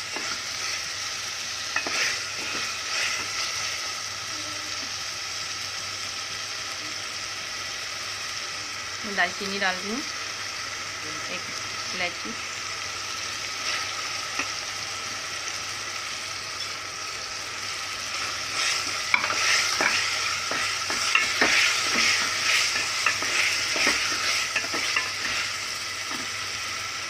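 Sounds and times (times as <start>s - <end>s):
chicken sizzling in oil: 0.0s - 27.0s
wooden spatula scraping pot: 1.8s - 3.5s, 18.2s - 25.5s.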